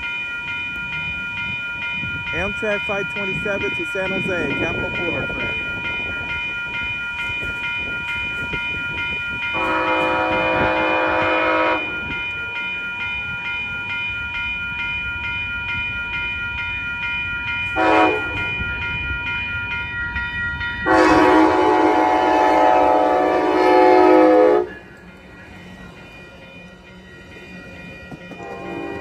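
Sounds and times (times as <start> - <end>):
level crossing bell ringing: 0.0 - 29.0
train rumbling: 0.0 - 29.0
train air horn: 9.6 - 12.0, 17.8 - 18.5, 20.9 - 24.8, 28.4 - 29.0.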